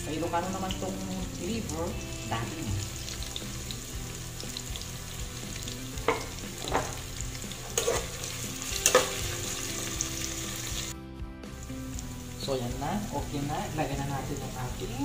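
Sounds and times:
vegetables sizzling in hot oil: 0:00.0 - 0:15.0
metal ladle stirring: 0:07.7 - 0:08.2.

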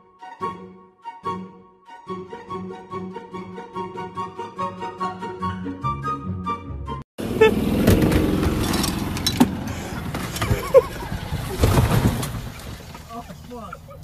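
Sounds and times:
golf cart driving over grass: 0:07.2 - 0:14.0
knocks and rattles: 0:07.8 - 0:13.1.

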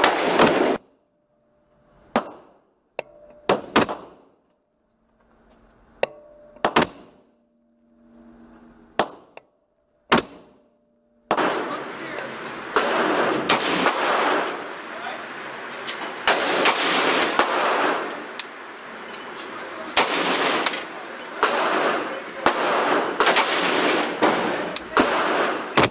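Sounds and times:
rifle shots with echo: 0:00.0 - 0:00.8, 0:03.5 - 0:04.4, 0:11.3 - 0:14.9, 0:16.2 - 0:18.2, 0:20.0 - 0:20.7, 0:21.4 - 0:25.9
faint steady hum: 0:00.8 - 0:19.2
loud continuous rushing noise: 0:10.0 - 0:25.9.

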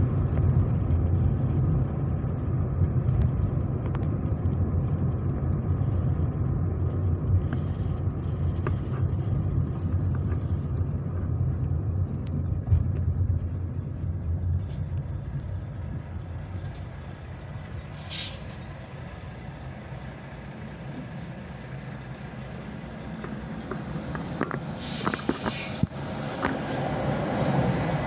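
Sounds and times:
car engine rumbling: 0:00.0 - 0:28.0
air brake hiss: 0:17.9 - 0:18.9, 0:24.7 - 0:25.8.

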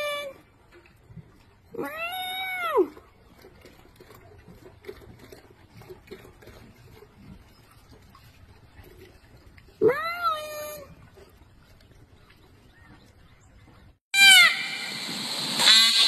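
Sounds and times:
peacock wailing call: 0:14.2 - 0:15.0.

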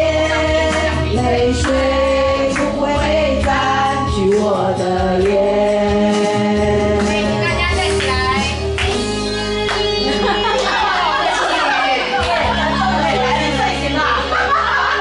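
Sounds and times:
women singing together: 0:00.0 - 0:08.4, 0:10.3 - 0:15.0
amplified backing track: 0:00.0 - 0:15.0.

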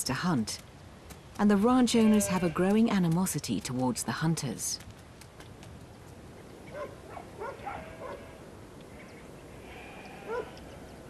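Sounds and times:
low steady background noise: 0:00.0 - 0:11.0
faint animal calls: 0:06.7 - 0:11.0.

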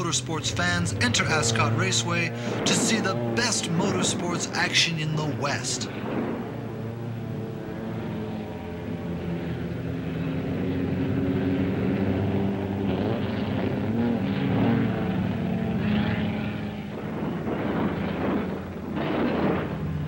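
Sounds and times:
race car engines revving: 0:00.0 - 0:20.0.

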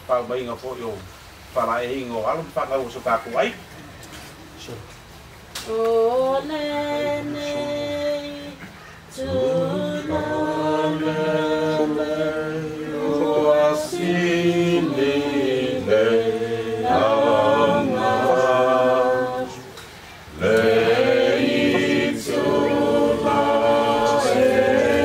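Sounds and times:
group singing: 0:05.6 - 0:25.0.

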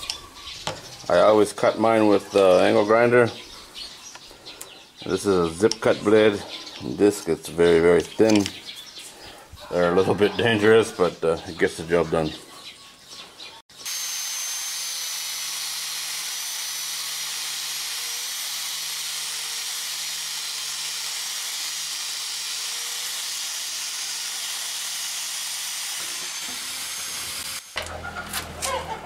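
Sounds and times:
angle grinder cutting pipe: 0:13.7 - 0:28.8.

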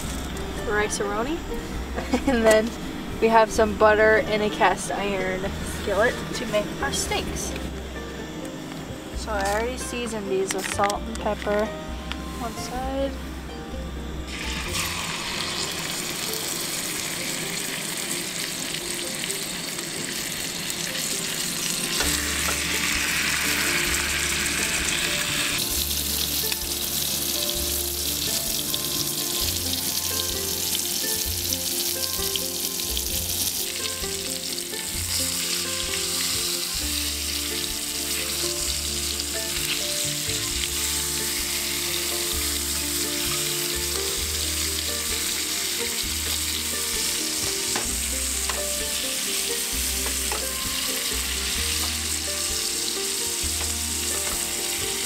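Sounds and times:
steak sizzling in skillet: 0:14.2 - 0:55.0.

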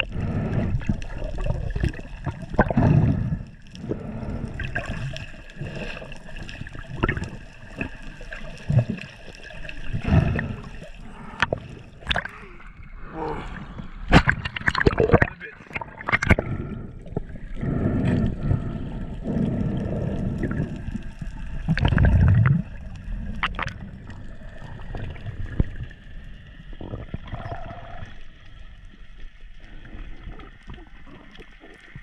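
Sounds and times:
underwater rushing and gurgling: 0:00.0 - 0:32.0
sharp underwater clicks: 0:05.8 - 0:09.1, 0:11.2 - 0:12.4, 0:14.1 - 0:17.3, 0:19.3 - 0:24.1.

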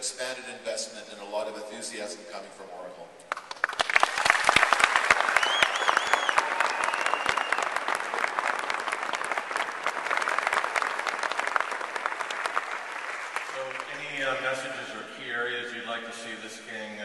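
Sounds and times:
audience applauding: 0:03.3 - 0:14.4
person whistling: 0:05.4 - 0:07.6.

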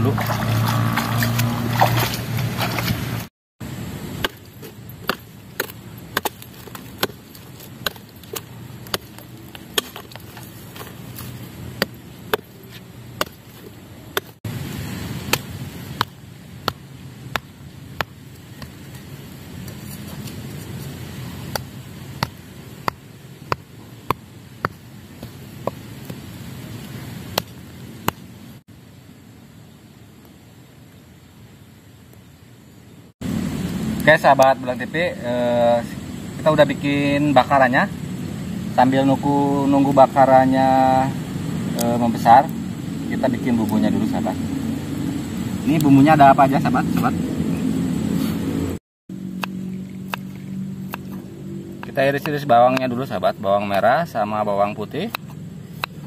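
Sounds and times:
rushing water: 0:00.0 - 0:03.3, 0:13.2 - 0:24.2
stone pounding wooden stake: 0:04.2 - 0:14.4, 0:15.3 - 0:19.0, 0:21.4 - 0:26.2, 0:27.3 - 0:28.2.

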